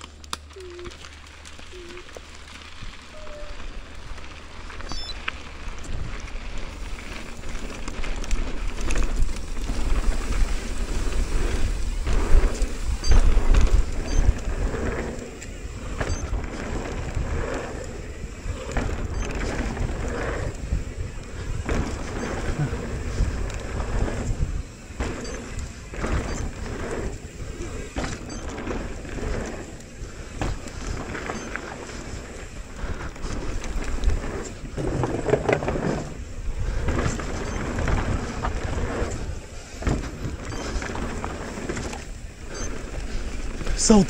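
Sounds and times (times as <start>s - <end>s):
bike rattling and knocking: 0.0s - 44.0s
tyres on loose dirt: 0.0s - 44.0s
wind rushing over microphone: 8.7s - 31.1s.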